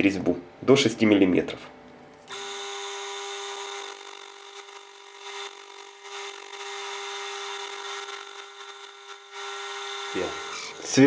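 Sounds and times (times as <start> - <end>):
cutting tool hiss: 2.3 - 11.0
lathe motor whine: 2.3 - 11.0.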